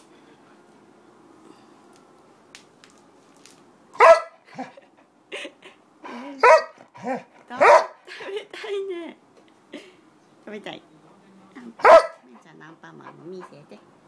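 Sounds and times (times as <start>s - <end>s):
dog barking: 4.0s - 4.7s, 6.4s - 8.0s, 11.8s - 12.3s.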